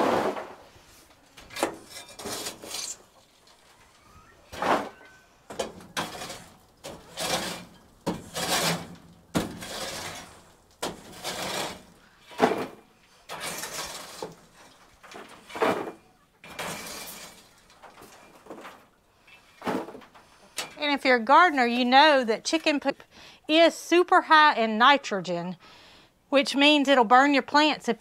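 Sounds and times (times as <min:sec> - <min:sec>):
shovel scraping metal mesh floor: 0:00.0 - 0:03.4, 0:04.5 - 0:18.8.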